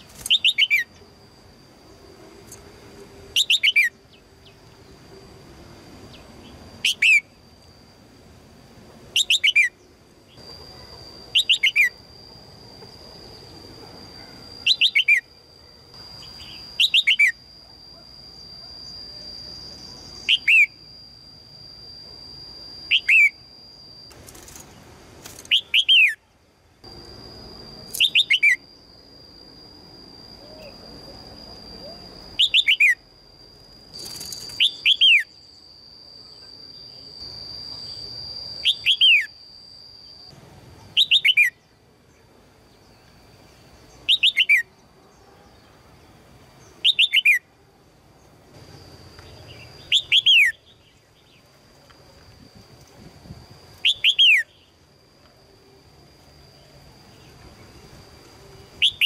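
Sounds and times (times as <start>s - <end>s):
bird chirping: 0.0s - 1.0s, 3.4s - 4.9s, 9.2s - 12.0s, 14.2s - 15.4s, 16.0s - 18.0s, 20.1s - 20.9s, 22.9s - 23.4s, 25.4s - 26.2s, 27.9s - 28.6s, 31.8s - 33.0s, 49.2s - 51.5s.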